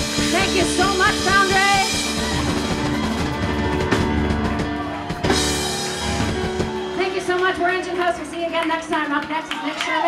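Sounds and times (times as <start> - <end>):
drum kit played hard: 0.0 - 7.4.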